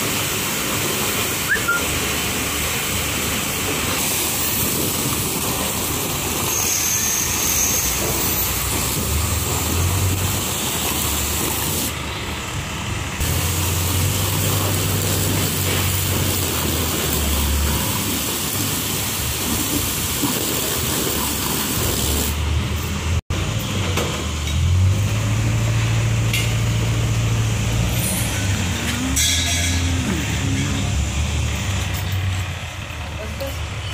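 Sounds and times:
water spray hissing: 0.0s - 12.0s, 13.2s - 22.5s
pressure washer humming: 0.0s - 23.2s, 24.4s - 33.6s.

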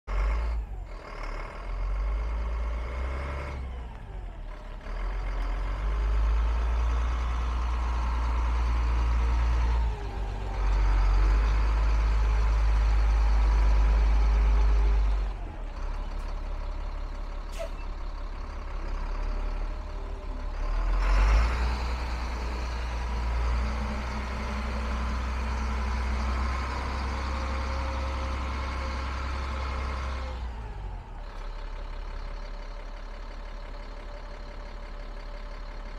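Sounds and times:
truck diesel engine running: 0.1s - 35.9s.

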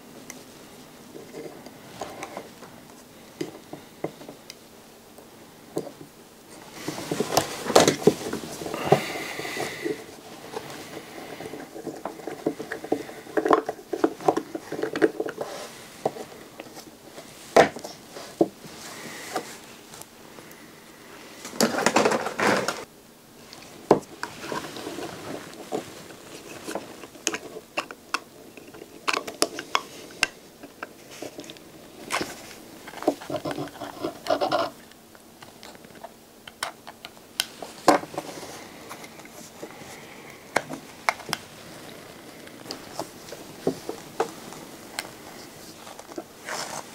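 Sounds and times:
plastic and metal parts clicking: 35.4s - 38.0s.

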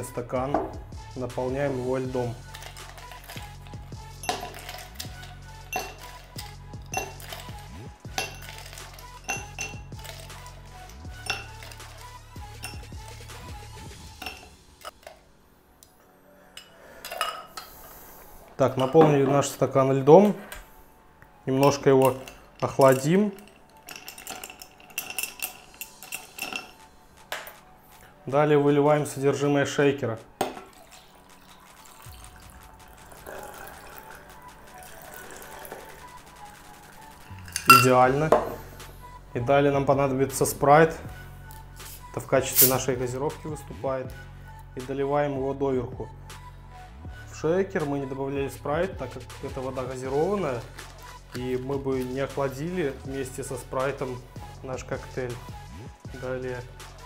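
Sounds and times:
liquid pouring into glass of ice: 4.2s - 5.0s, 30.6s - 36.2s
ice cubes clinking in glass: 4.2s - 5.1s, 5.7s - 10.3s, 11.2s - 12.0s, 21.7s - 26.8s, 30.6s - 34.2s, 37.3s - 38.0s.

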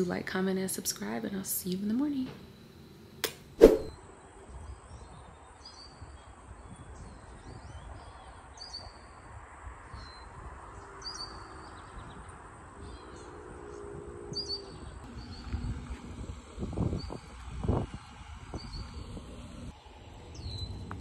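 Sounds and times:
small birds chirping: 9.9s - 15.9s, 20.3s - 21.0s.

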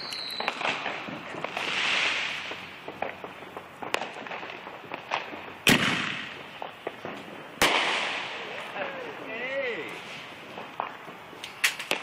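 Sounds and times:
loud firework bang: 0.0s - 8.6s
firecracker pops and cracks: 0.0s - 9.0s, 9.8s - 12.0s
crackling hiss of fireworks: 0.0s - 12.0s.

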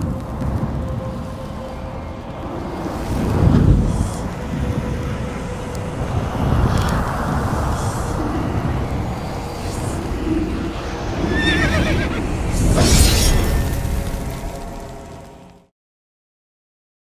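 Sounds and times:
deep rumble: 0.0s - 15.6s
wavering high shriek: 1.2s - 14.9s.

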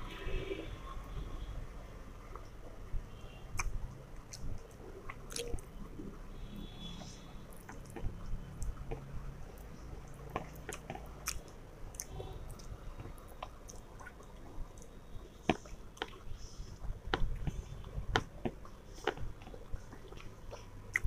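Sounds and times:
person chewing: 3.5s - 6.0s, 7.0s - 21.0s.

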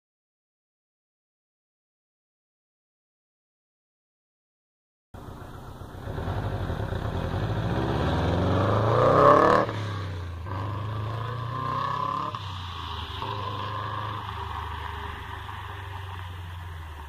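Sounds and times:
car accelerating hard past: 5.9s - 17.0s.

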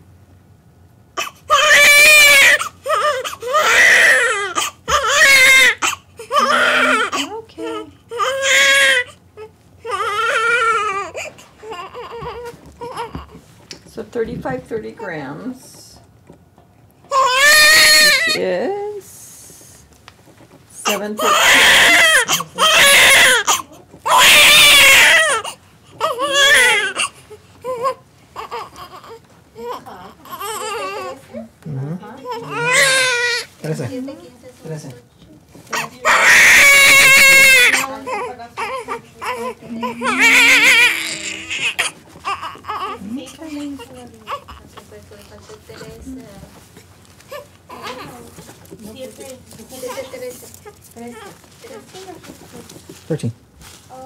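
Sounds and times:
newborn baby crying: 1.2s - 13.4s, 17.1s - 18.4s, 20.8s - 31.4s, 32.2s - 33.6s, 35.7s - 46.2s, 47.2s - 48.5s, 49.8s - 52.0s.

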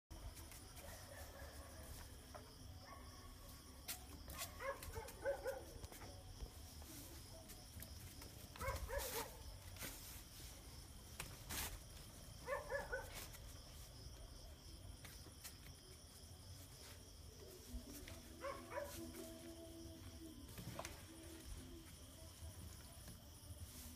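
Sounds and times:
puppy barking: 4.4s - 5.7s, 8.6s - 9.4s, 12.4s - 13.1s, 18.4s - 18.9s.

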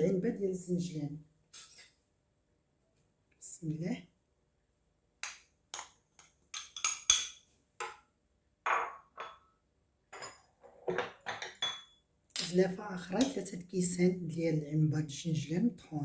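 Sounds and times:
spoon clinking on dish: 6.5s - 8.0s, 8.7s - 9.5s, 10.2s - 12.6s.

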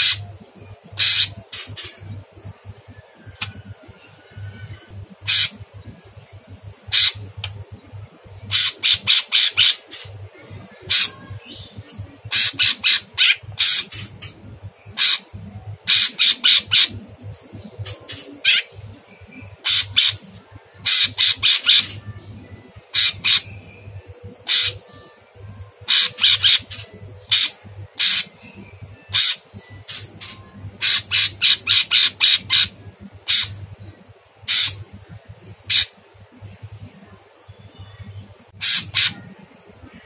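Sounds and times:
bird giving harsh rasping calls: 0.0s - 0.3s, 1.0s - 2.0s, 5.2s - 5.6s, 6.9s - 7.2s, 8.5s - 10.1s, 12.3s - 17.1s, 18.1s - 18.8s, 19.6s - 20.2s, 20.8s - 22.0s, 22.9s - 23.6s, 24.4s - 24.9s, 25.8s - 28.4s, 29.1s - 33.6s, 34.5s - 34.8s, 35.7s - 36.0s, 38.6s - 39.3s.

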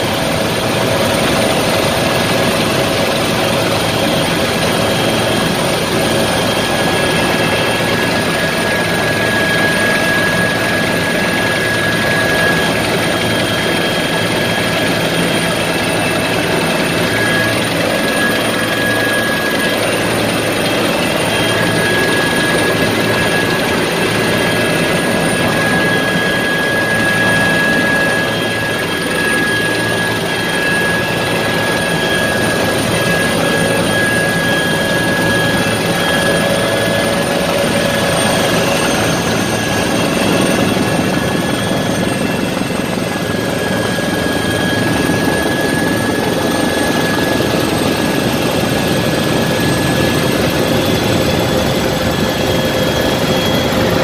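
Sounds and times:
helicopter engine and rotor drone: 0.0s - 54.0s
high-pitched whine: 0.7s - 54.0s.

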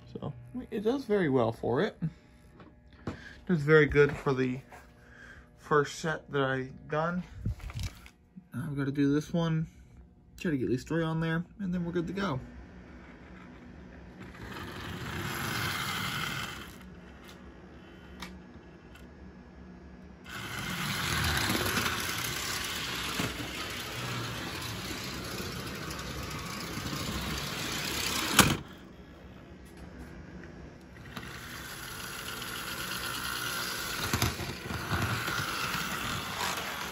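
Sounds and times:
toy train motor whirring: 14.2s - 18.0s, 20.3s - 28.8s, 30.9s - 36.9s.

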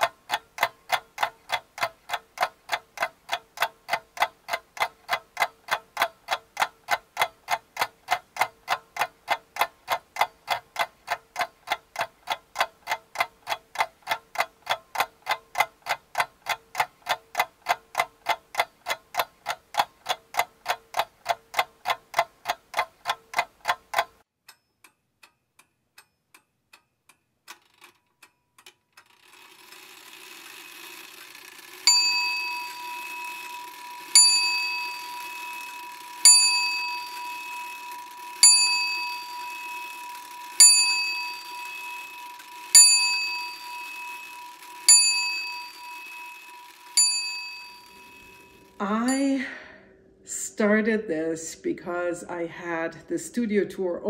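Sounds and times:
mechanical ticking: 0.0s - 49.5s
ringing ding: 31.9s - 40.0s, 40.6s - 42.2s, 42.8s - 49.2s.

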